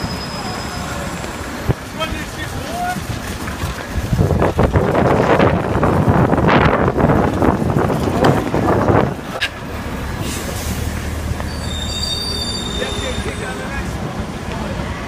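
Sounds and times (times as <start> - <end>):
high squeal: 0.0 - 1.2, 10.2 - 13.8
scooter wheels rolling on asphalt: 0.0 - 10.2.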